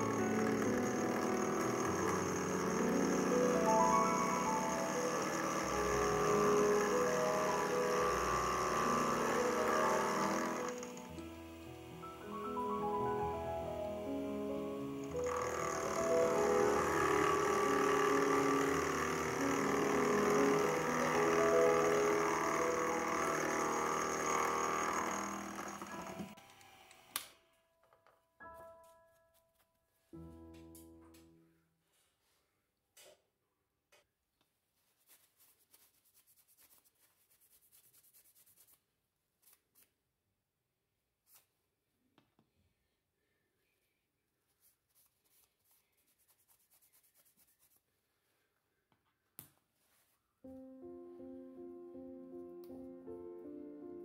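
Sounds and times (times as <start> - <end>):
milling machine whining: 0.0 - 12.7, 14.0 - 27.2
paper towel rubbing metal: 34.8 - 39.6, 44.5 - 48.3.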